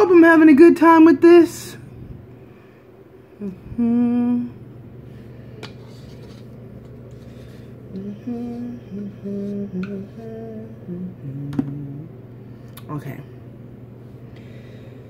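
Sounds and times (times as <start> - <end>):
steady low background hum: 0.0 - 15.0
woman humming a tune: 3.4 - 4.7, 7.9 - 12.3.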